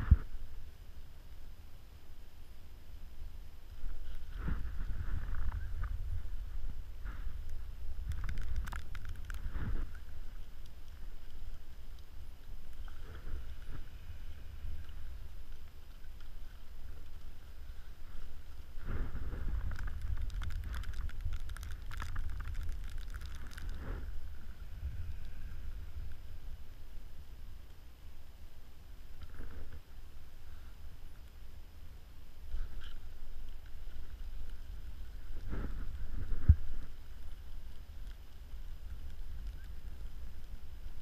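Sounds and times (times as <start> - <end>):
wind rumbling on microphone: 0.0 - 41.0.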